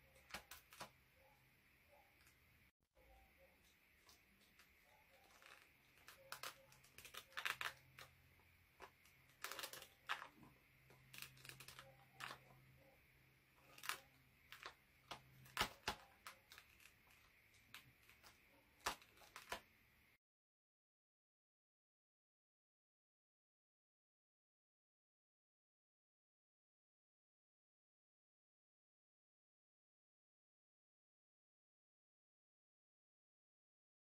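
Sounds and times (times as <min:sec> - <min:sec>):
paper crackling: 0:00.0 - 0:01.0, 0:03.6 - 0:12.9, 0:13.5 - 0:19.7.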